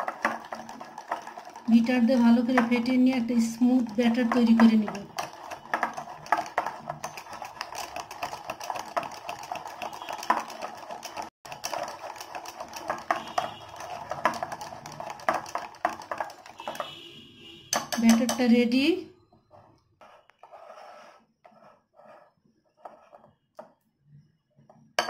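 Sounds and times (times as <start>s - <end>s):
whisk beating batter in glass bowl: 0.0s - 17.1s, 17.7s - 18.7s.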